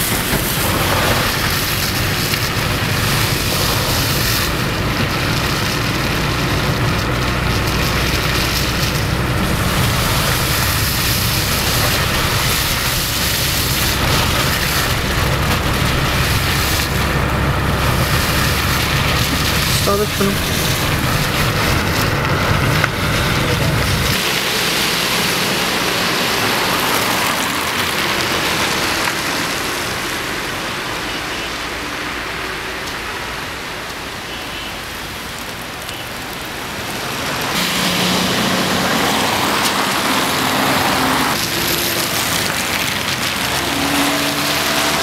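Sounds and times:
low vehicle rumble: 0:00.0 - 0:33.4
traffic hiss on wet road: 0:00.0 - 0:45.0.

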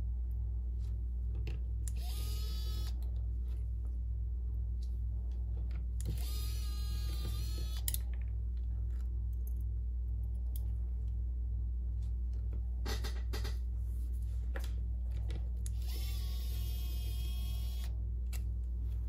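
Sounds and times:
steady low hum: 0:00.0 - 0:19.0
electric screwdriver whirring: 0:06.0 - 0:07.9, 0:15.7 - 0:17.9.

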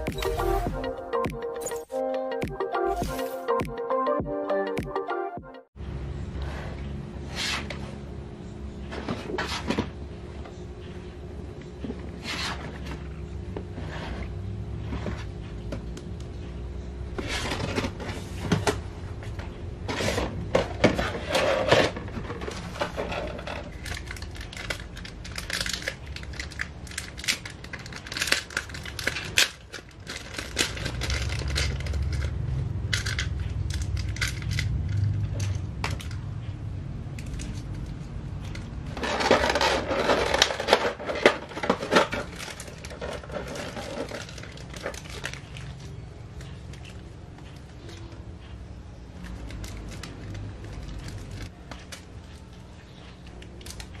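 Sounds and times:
plastic bags crinkling: 0:21.4 - 0:32.4, 0:38.4 - 0:47.0, 0:49.2 - 0:52.5
plastic pieces clicking: 0:23.2 - 0:36.2.

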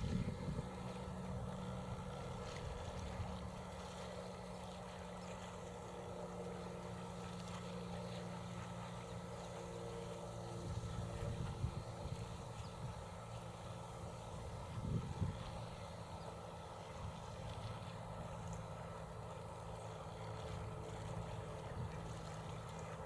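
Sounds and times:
distant engine drone: 0:00.0 - 0:23.0.

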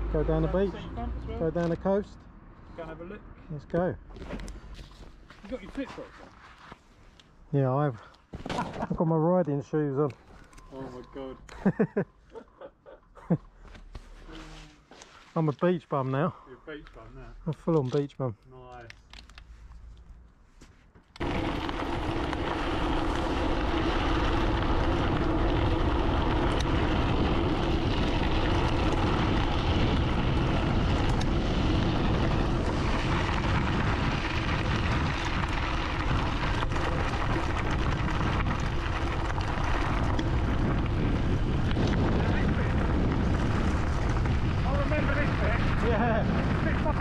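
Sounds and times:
wind buffeting microphone: 0:21.2 - 0:47.0.

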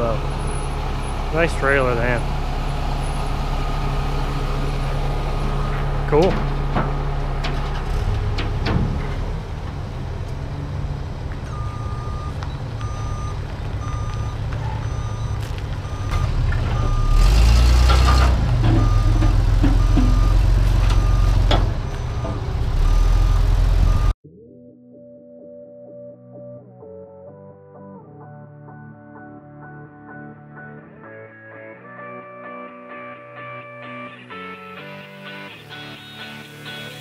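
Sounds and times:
forklift engine running: 0:00.0 - 0:24.2
forklift warning beeper: 0:02.9 - 0:04.7, 0:11.5 - 0:24.2.

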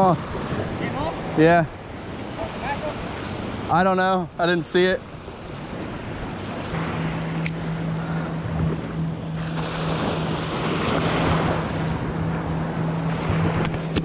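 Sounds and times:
small surf waves washing: 0:00.0 - 0:14.0
wind buffeting microphone: 0:00.0 - 0:14.0
steady low hum: 0:04.2 - 0:14.0.

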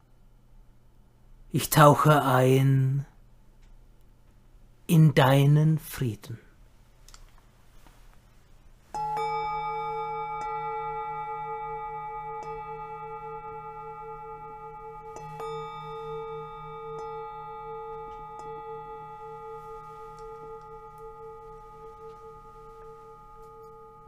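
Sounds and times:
singing bowl ringing: 0:08.9 - 0:24.0.

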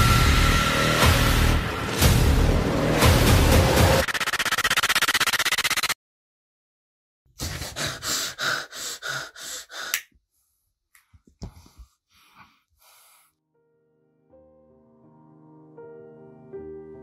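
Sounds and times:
man gasping for breath: 0:07.4 - 0:10.1
man breathing while smoking: 0:07.4 - 0:13.4
faint piano music: 0:13.5 - 0:17.0.

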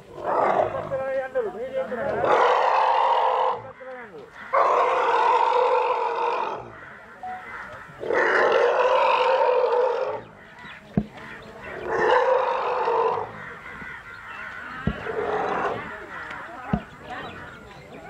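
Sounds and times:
elephant calf calling: 0:04.5 - 0:18.0
sharp knocks: 0:10.9 - 0:11.4, 0:14.7 - 0:15.2, 0:16.6 - 0:17.2.

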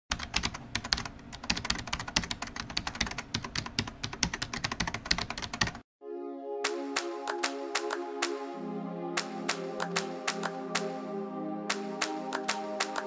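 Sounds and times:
fast keyboard typing: 0:00.1 - 0:05.8, 0:06.7 - 0:08.0, 0:09.2 - 0:10.9, 0:11.7 - 0:13.0.

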